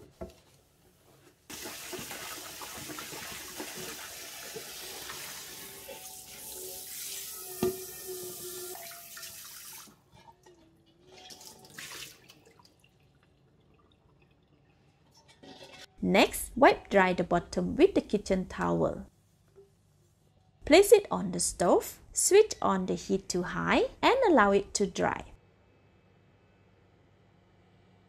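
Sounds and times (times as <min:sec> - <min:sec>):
tap water running onto a wok: 0:01.5 - 0:10.0
water splashing and trickling: 0:01.5 - 0:15.8.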